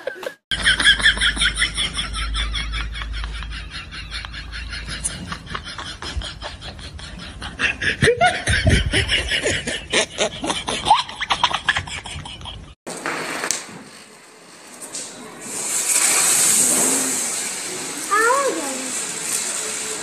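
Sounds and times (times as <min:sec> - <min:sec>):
young men laughing and calling: 0:00.0 - 0:12.8
firecracker hissing sparks: 0:12.9 - 0:20.0.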